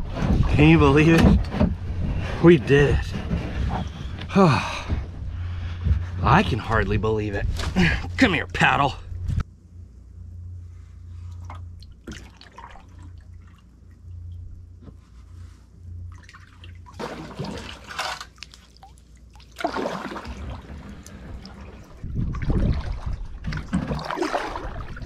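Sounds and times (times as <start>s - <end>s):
water sloshing: 11.1s - 25.0s
water splashing around kayak: 11.1s - 25.0s.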